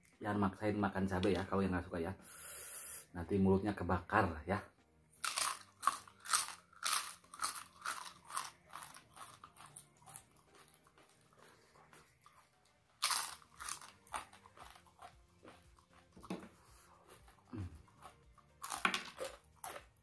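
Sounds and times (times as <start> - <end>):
crackers being crunched: 5.2 - 12.4, 13.0 - 16.4, 17.1 - 20.0
soft chewing: 5.2 - 20.0.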